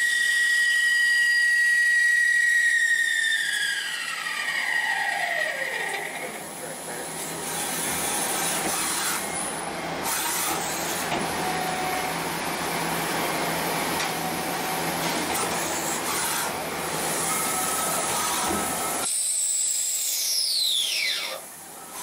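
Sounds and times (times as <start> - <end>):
hissing coolant spray and cutting: 10.0 - 22.0.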